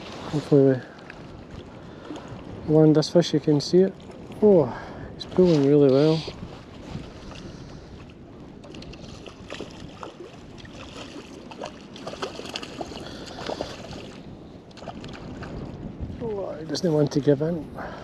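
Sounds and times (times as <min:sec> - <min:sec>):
water noise: 0:00.0 - 0:18.0
wind: 0:00.0 - 0:18.0
small splashes: 0:08.6 - 0:14.2.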